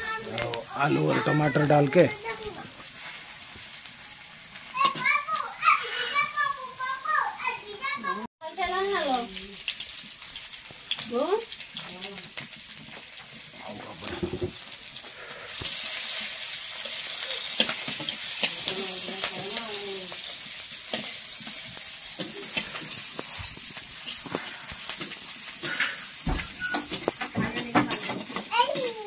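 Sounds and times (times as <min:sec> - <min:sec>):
food sizzling in hot oil: 0:00.0 - 0:29.0
metal spatula scraping a pan: 0:05.6 - 0:06.4, 0:20.2 - 0:29.0.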